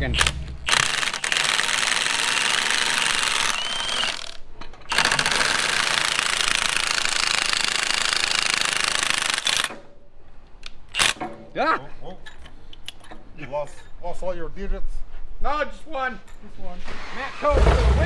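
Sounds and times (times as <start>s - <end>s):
motor whine: 2.5s - 4.4s.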